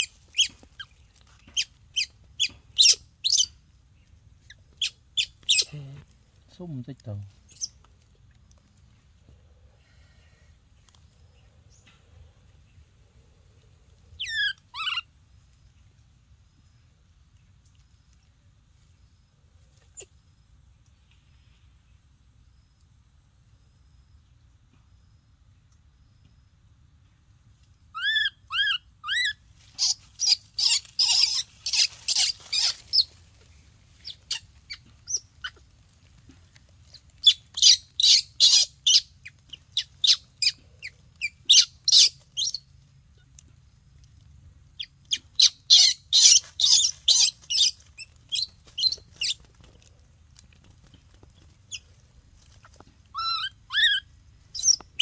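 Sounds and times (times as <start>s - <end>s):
baby monkey coo calls: 0.0s - 3.6s, 4.4s - 5.7s, 14.2s - 15.1s, 27.9s - 33.2s, 34.0s - 35.7s, 36.9s - 43.3s, 44.8s - 49.4s, 52.6s - 55.0s.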